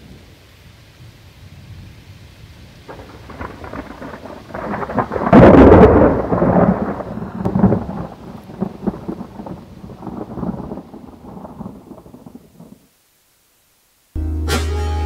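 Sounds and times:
rain: 0.0 - 15.0
thunder clap rumbling: 1.0 - 12.9.

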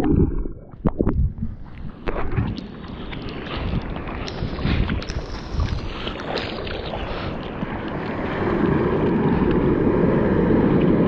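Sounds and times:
arm strokes splashing water: 1.6 - 9.6
surf rushing: 2.2 - 11.0.

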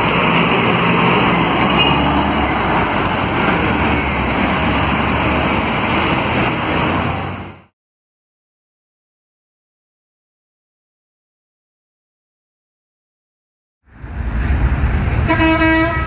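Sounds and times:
bus diesel engine under load: 0.0 - 7.7, 13.9 - 16.0
street traffic: 0.0 - 7.7, 13.9 - 16.0.

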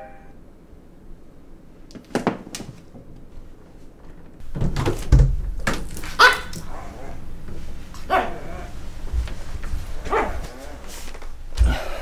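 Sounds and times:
door opening thump: 4.4 - 6.1
dog barking and whimpering: 6.1 - 7.3, 8.0 - 8.8, 10.0 - 11.0.

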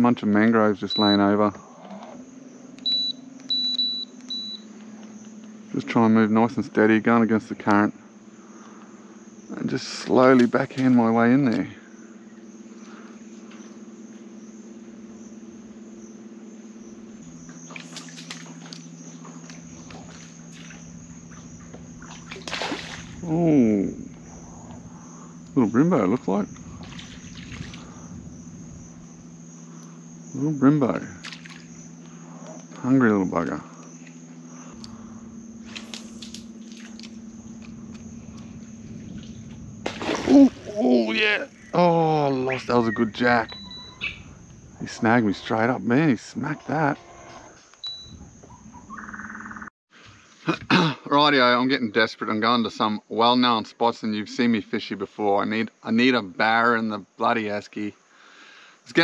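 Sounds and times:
electric motor humming: 8.6 - 43.6.

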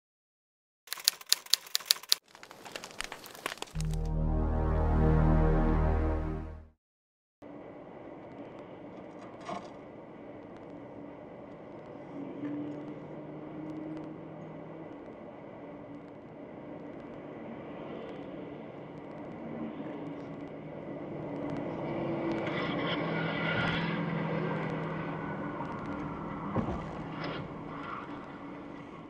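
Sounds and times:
tyre and road noise: 0.9 - 4.2, 7.4 - 29.0
low engine hum: 7.5 - 29.0.

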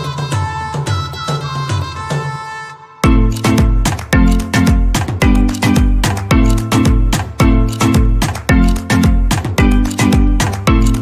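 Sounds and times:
melody over steady beat: 3.0 - 11.0.

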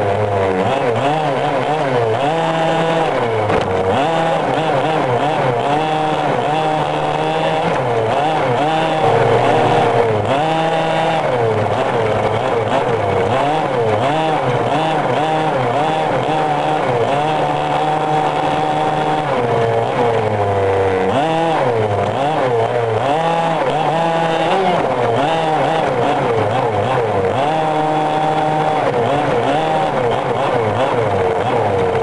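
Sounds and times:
small two-stroke engine revving: 0.0 - 32.0.

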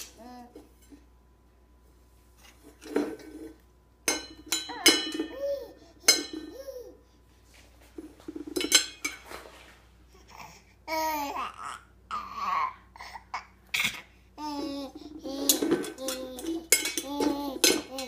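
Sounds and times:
metallic pot clangs: 4.1 - 5.4, 6.1 - 6.5, 15.5 - 18.0
baby vocal sounds: 10.1 - 18.0.

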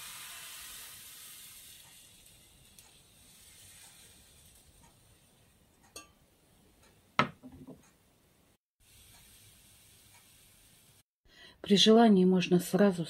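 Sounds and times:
frying pan clacking on cooktop: 7.2 - 7.8.

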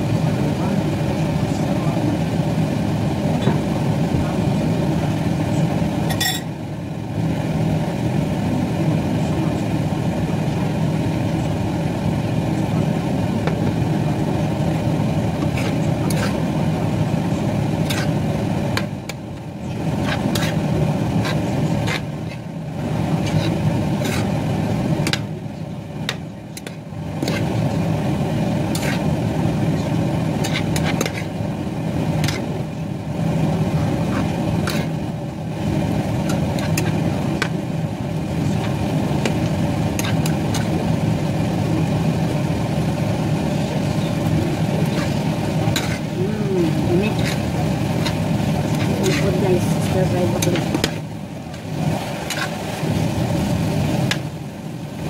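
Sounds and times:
steady low hum: 0.0 - 55.0
metal spoon scraping frying pan: 15.4 - 16.4, 20.0 - 20.6, 23.2 - 24.3, 30.4 - 31.3, 44.8 - 46.2, 47.0 - 51.0.

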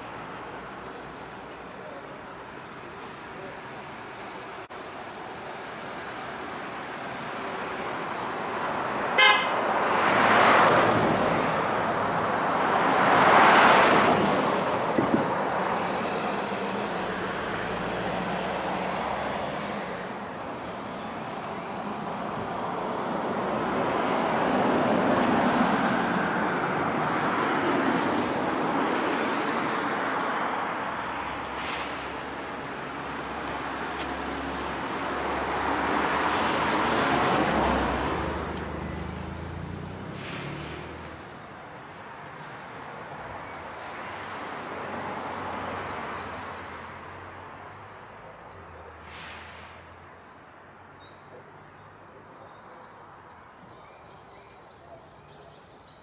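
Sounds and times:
vehicles passing: 0.0 - 56.0
car horn toot: 9.2 - 9.6.

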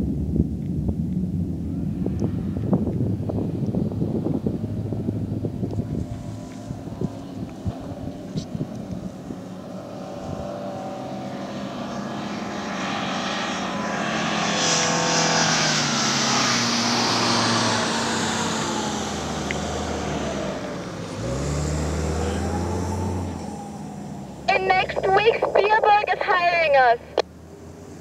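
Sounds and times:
vehicle engine drone: 0.0 - 28.0.

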